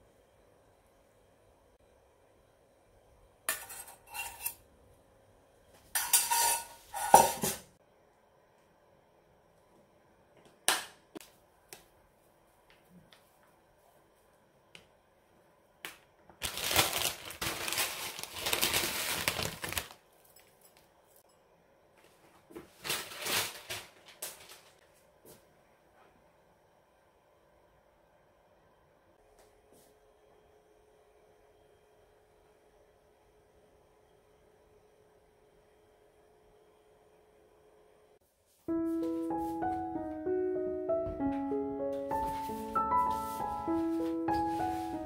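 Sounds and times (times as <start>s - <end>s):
rustling: 16.4s - 20.7s.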